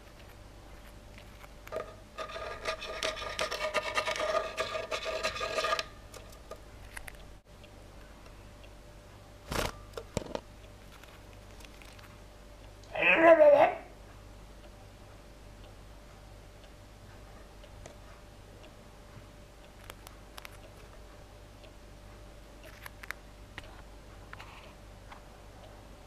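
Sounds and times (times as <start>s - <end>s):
lovebird scratchy rasp: 1.8s - 5.9s.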